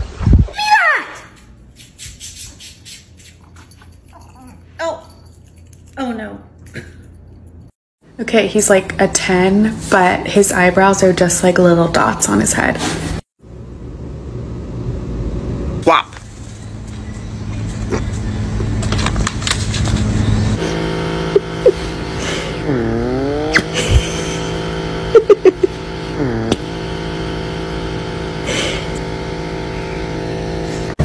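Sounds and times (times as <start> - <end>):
pet nail grinder whining: 21.3 - 31.0.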